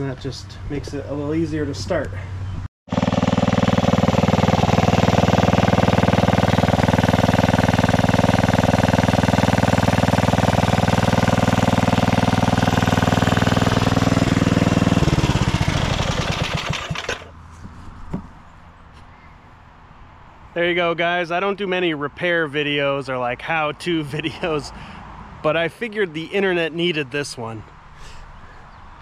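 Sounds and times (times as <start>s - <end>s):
riding mower engine running: 1.8s - 18.3s.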